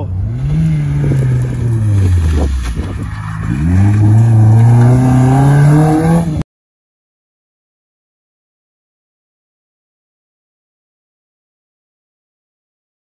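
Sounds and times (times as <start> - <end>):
car engine revving: 0.0 - 6.4.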